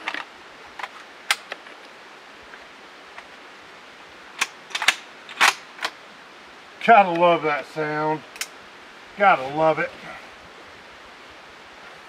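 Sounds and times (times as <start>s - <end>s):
rifle action metallic clicks: 4.4s - 6.0s.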